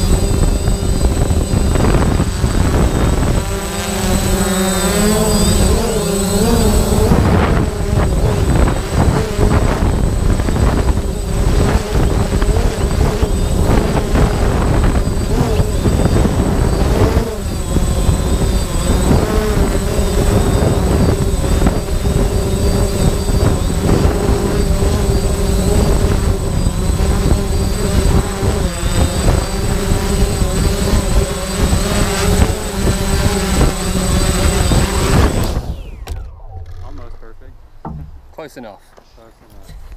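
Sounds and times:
wind buffeting microphone: 0:00.0 - 0:38.4
drone propellers humming: 0:00.0 - 0:38.6.

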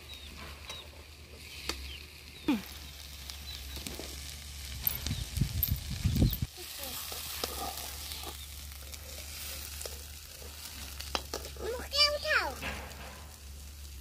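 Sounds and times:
potato strips sizzling in oil: 0:00.0 - 0:14.0
spatula clicking and scraping: 0:07.0 - 0:11.8.

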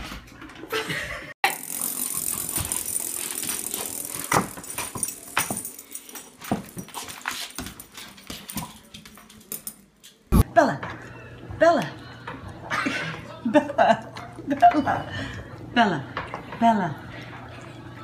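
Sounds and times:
hard toy clattering on wooden floor: 0:01.5 - 0:09.8.

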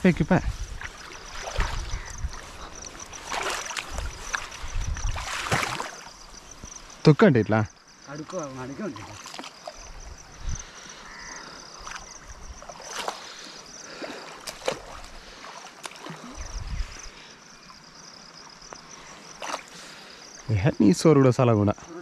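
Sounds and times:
insects chirping: 0:00.0 - 0:22.0
person wading through water: 0:00.5 - 0:07.0, 0:08.8 - 0:17.6, 0:18.2 - 0:20.4
short sharp splashes: 0:00.8 - 0:02.6, 0:03.2 - 0:06.1, 0:12.7 - 0:16.3, 0:19.4 - 0:19.8.

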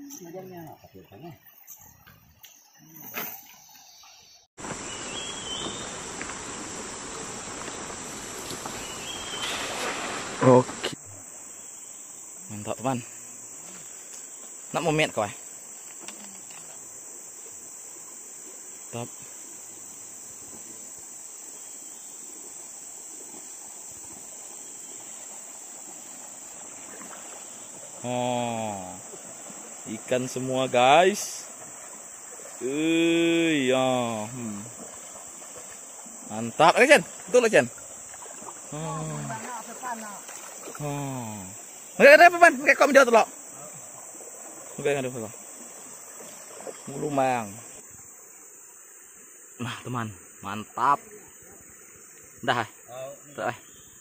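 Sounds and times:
insects buzzing: 0:00.0 - 0:54.0
river water rushing: 0:04.6 - 0:11.1, 0:22.3 - 0:48.5.

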